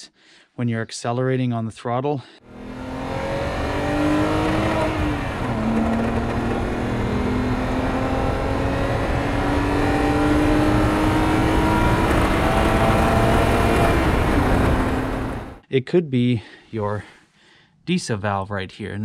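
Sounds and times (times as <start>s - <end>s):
car engine revving at full throttle: 2.5s - 15.6s
grinding noise: 4.0s - 7.6s.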